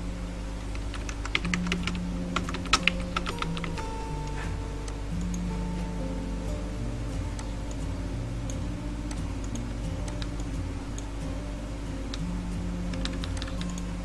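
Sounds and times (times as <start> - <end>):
soft background music: 0.0 - 14.0
computer mouse clicks: 0.7 - 4.4, 9.1 - 11.1, 12.9 - 13.9.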